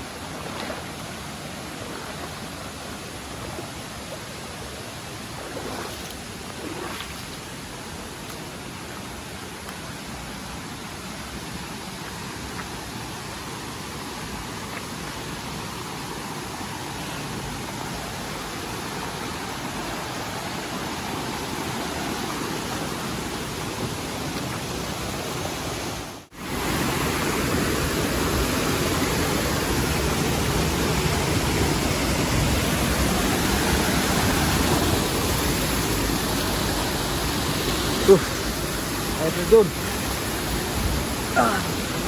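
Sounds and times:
stream and waterfall rushing: 0.0s - 42.0s.

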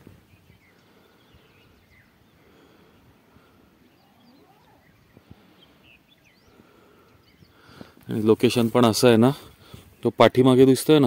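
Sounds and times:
birds chirping and whistling: 0.0s - 8.1s.

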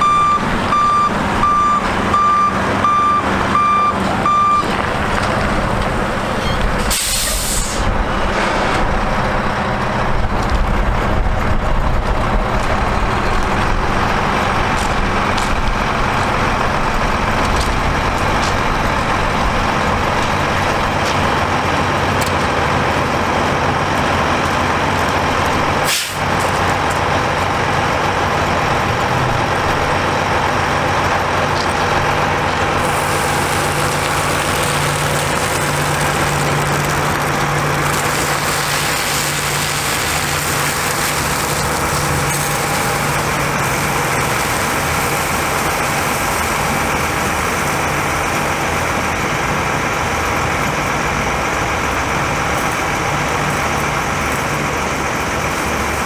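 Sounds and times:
diesel engine running: 0.0s - 56.0s
hose nozzle water hiss: 6.9s - 7.8s, 32.8s - 35.2s
water spraying hiss: 6.9s - 7.9s, 32.8s - 36.6s, 37.8s - 47.6s.

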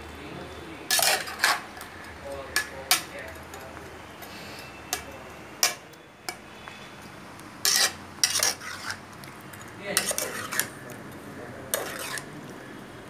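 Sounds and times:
metal spatula scraping a pot: 0.9s - 1.8s, 7.6s - 9.1s, 10.0s - 10.8s, 11.7s - 12.3s.

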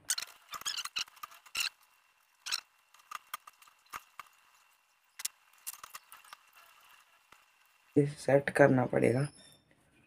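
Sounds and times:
bike wheel metallic clicks: 0.0s - 8.0s.

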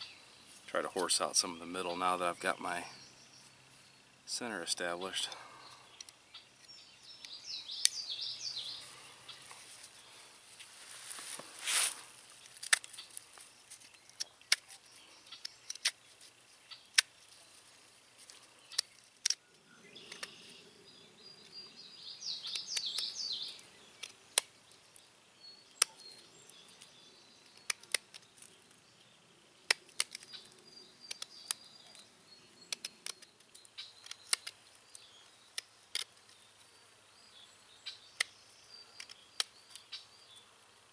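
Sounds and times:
carving blade clicking into wood: 31.0s - 31.6s.

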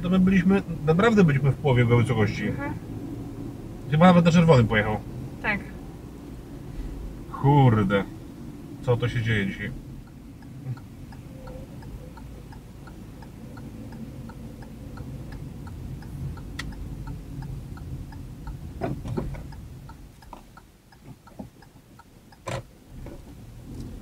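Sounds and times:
car engine and road noise: 0.0s - 24.0s
turn signal ticking: 0.0s - 24.0s.

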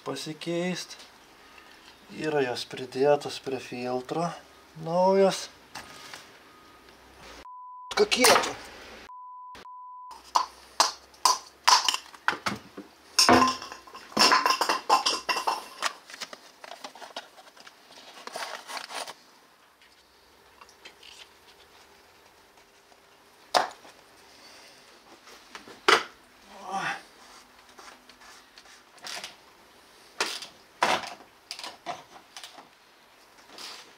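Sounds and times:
censor beep: 7.4s - 8.1s, 9.1s - 10.2s
metal tools clinking: 13.2s - 16.0s.

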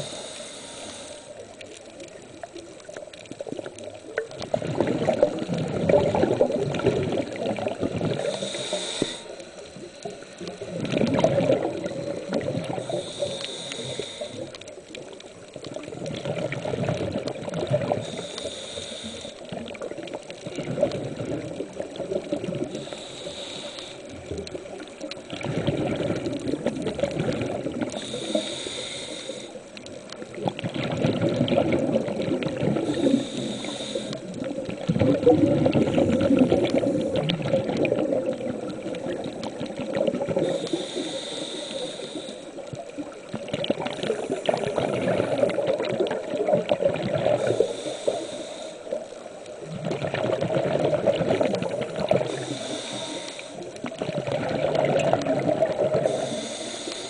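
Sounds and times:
regulator inhalation hiss: 0.0s - 1.5s, 8.1s - 10.8s, 12.6s - 14.8s, 17.9s - 20.0s, 22.6s - 24.8s, 27.9s - 29.8s, 32.8s - 34.4s, 40.4s - 43.1s, 47.4s - 49.3s, 51.7s - 53.8s, 56.0s - 57.0s
exhaled bubbles rushing: 2.1s - 8.6s, 10.4s - 13.2s, 15.0s - 18.3s, 19.4s - 22.9s, 24.2s - 28.1s, 30.0s - 33.4s, 34.2s - 40.8s, 42.6s - 47.6s, 48.9s - 52.6s, 53.7s - 56.4s.

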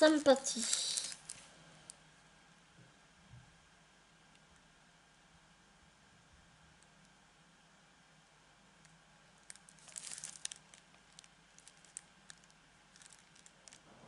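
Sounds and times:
plastic packaging crinkling: 0.0s - 1.5s, 9.4s - 13.9s.

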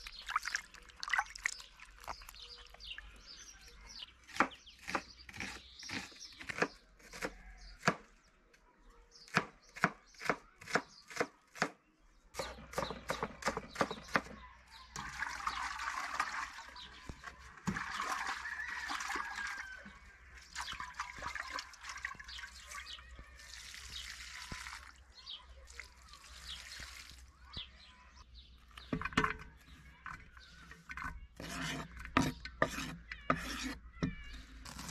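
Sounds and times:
water pouring and splashing: 0.0s - 3.3s, 14.9s - 27.8s.

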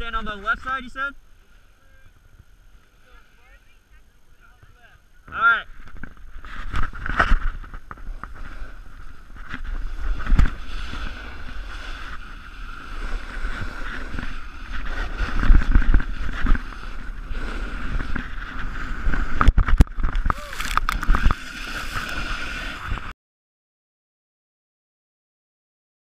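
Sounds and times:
snowboard scraping over snow: 6.2s - 23.1s.

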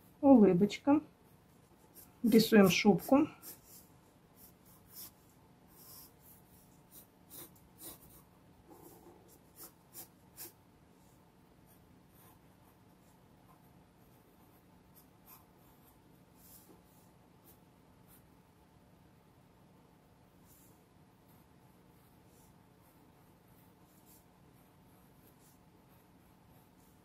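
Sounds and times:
pencil scratching on paper: 1.3s - 18.3s, 20.4s - 27.0s.

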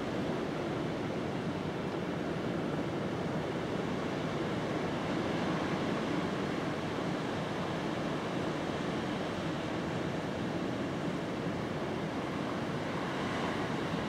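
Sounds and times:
distant sea surf: 0.0s - 14.0s.

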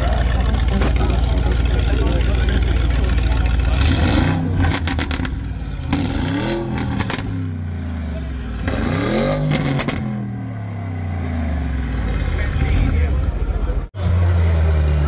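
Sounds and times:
car engine revving: 0.0s - 15.0s
exhaust pops and bangs: 6.7s - 7.4s.

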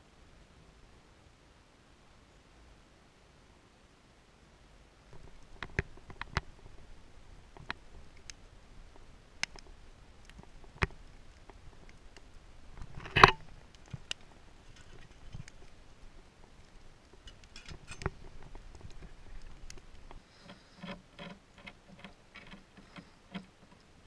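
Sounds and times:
wood fire crackling: 5.0s - 24.0s
fire pops: 5.1s - 20.5s.

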